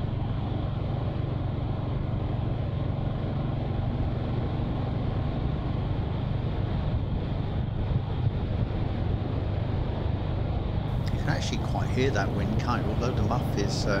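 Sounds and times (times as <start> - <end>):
wind on microphone: 3.8 - 14.0.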